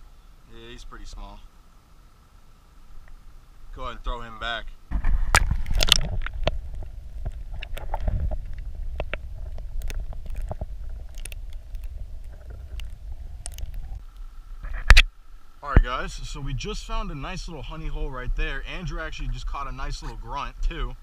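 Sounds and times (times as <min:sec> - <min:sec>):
underwater clicks and crackles: 0:04.9 - 0:15.1
muffled underwater rumble: 0:04.9 - 0:21.0.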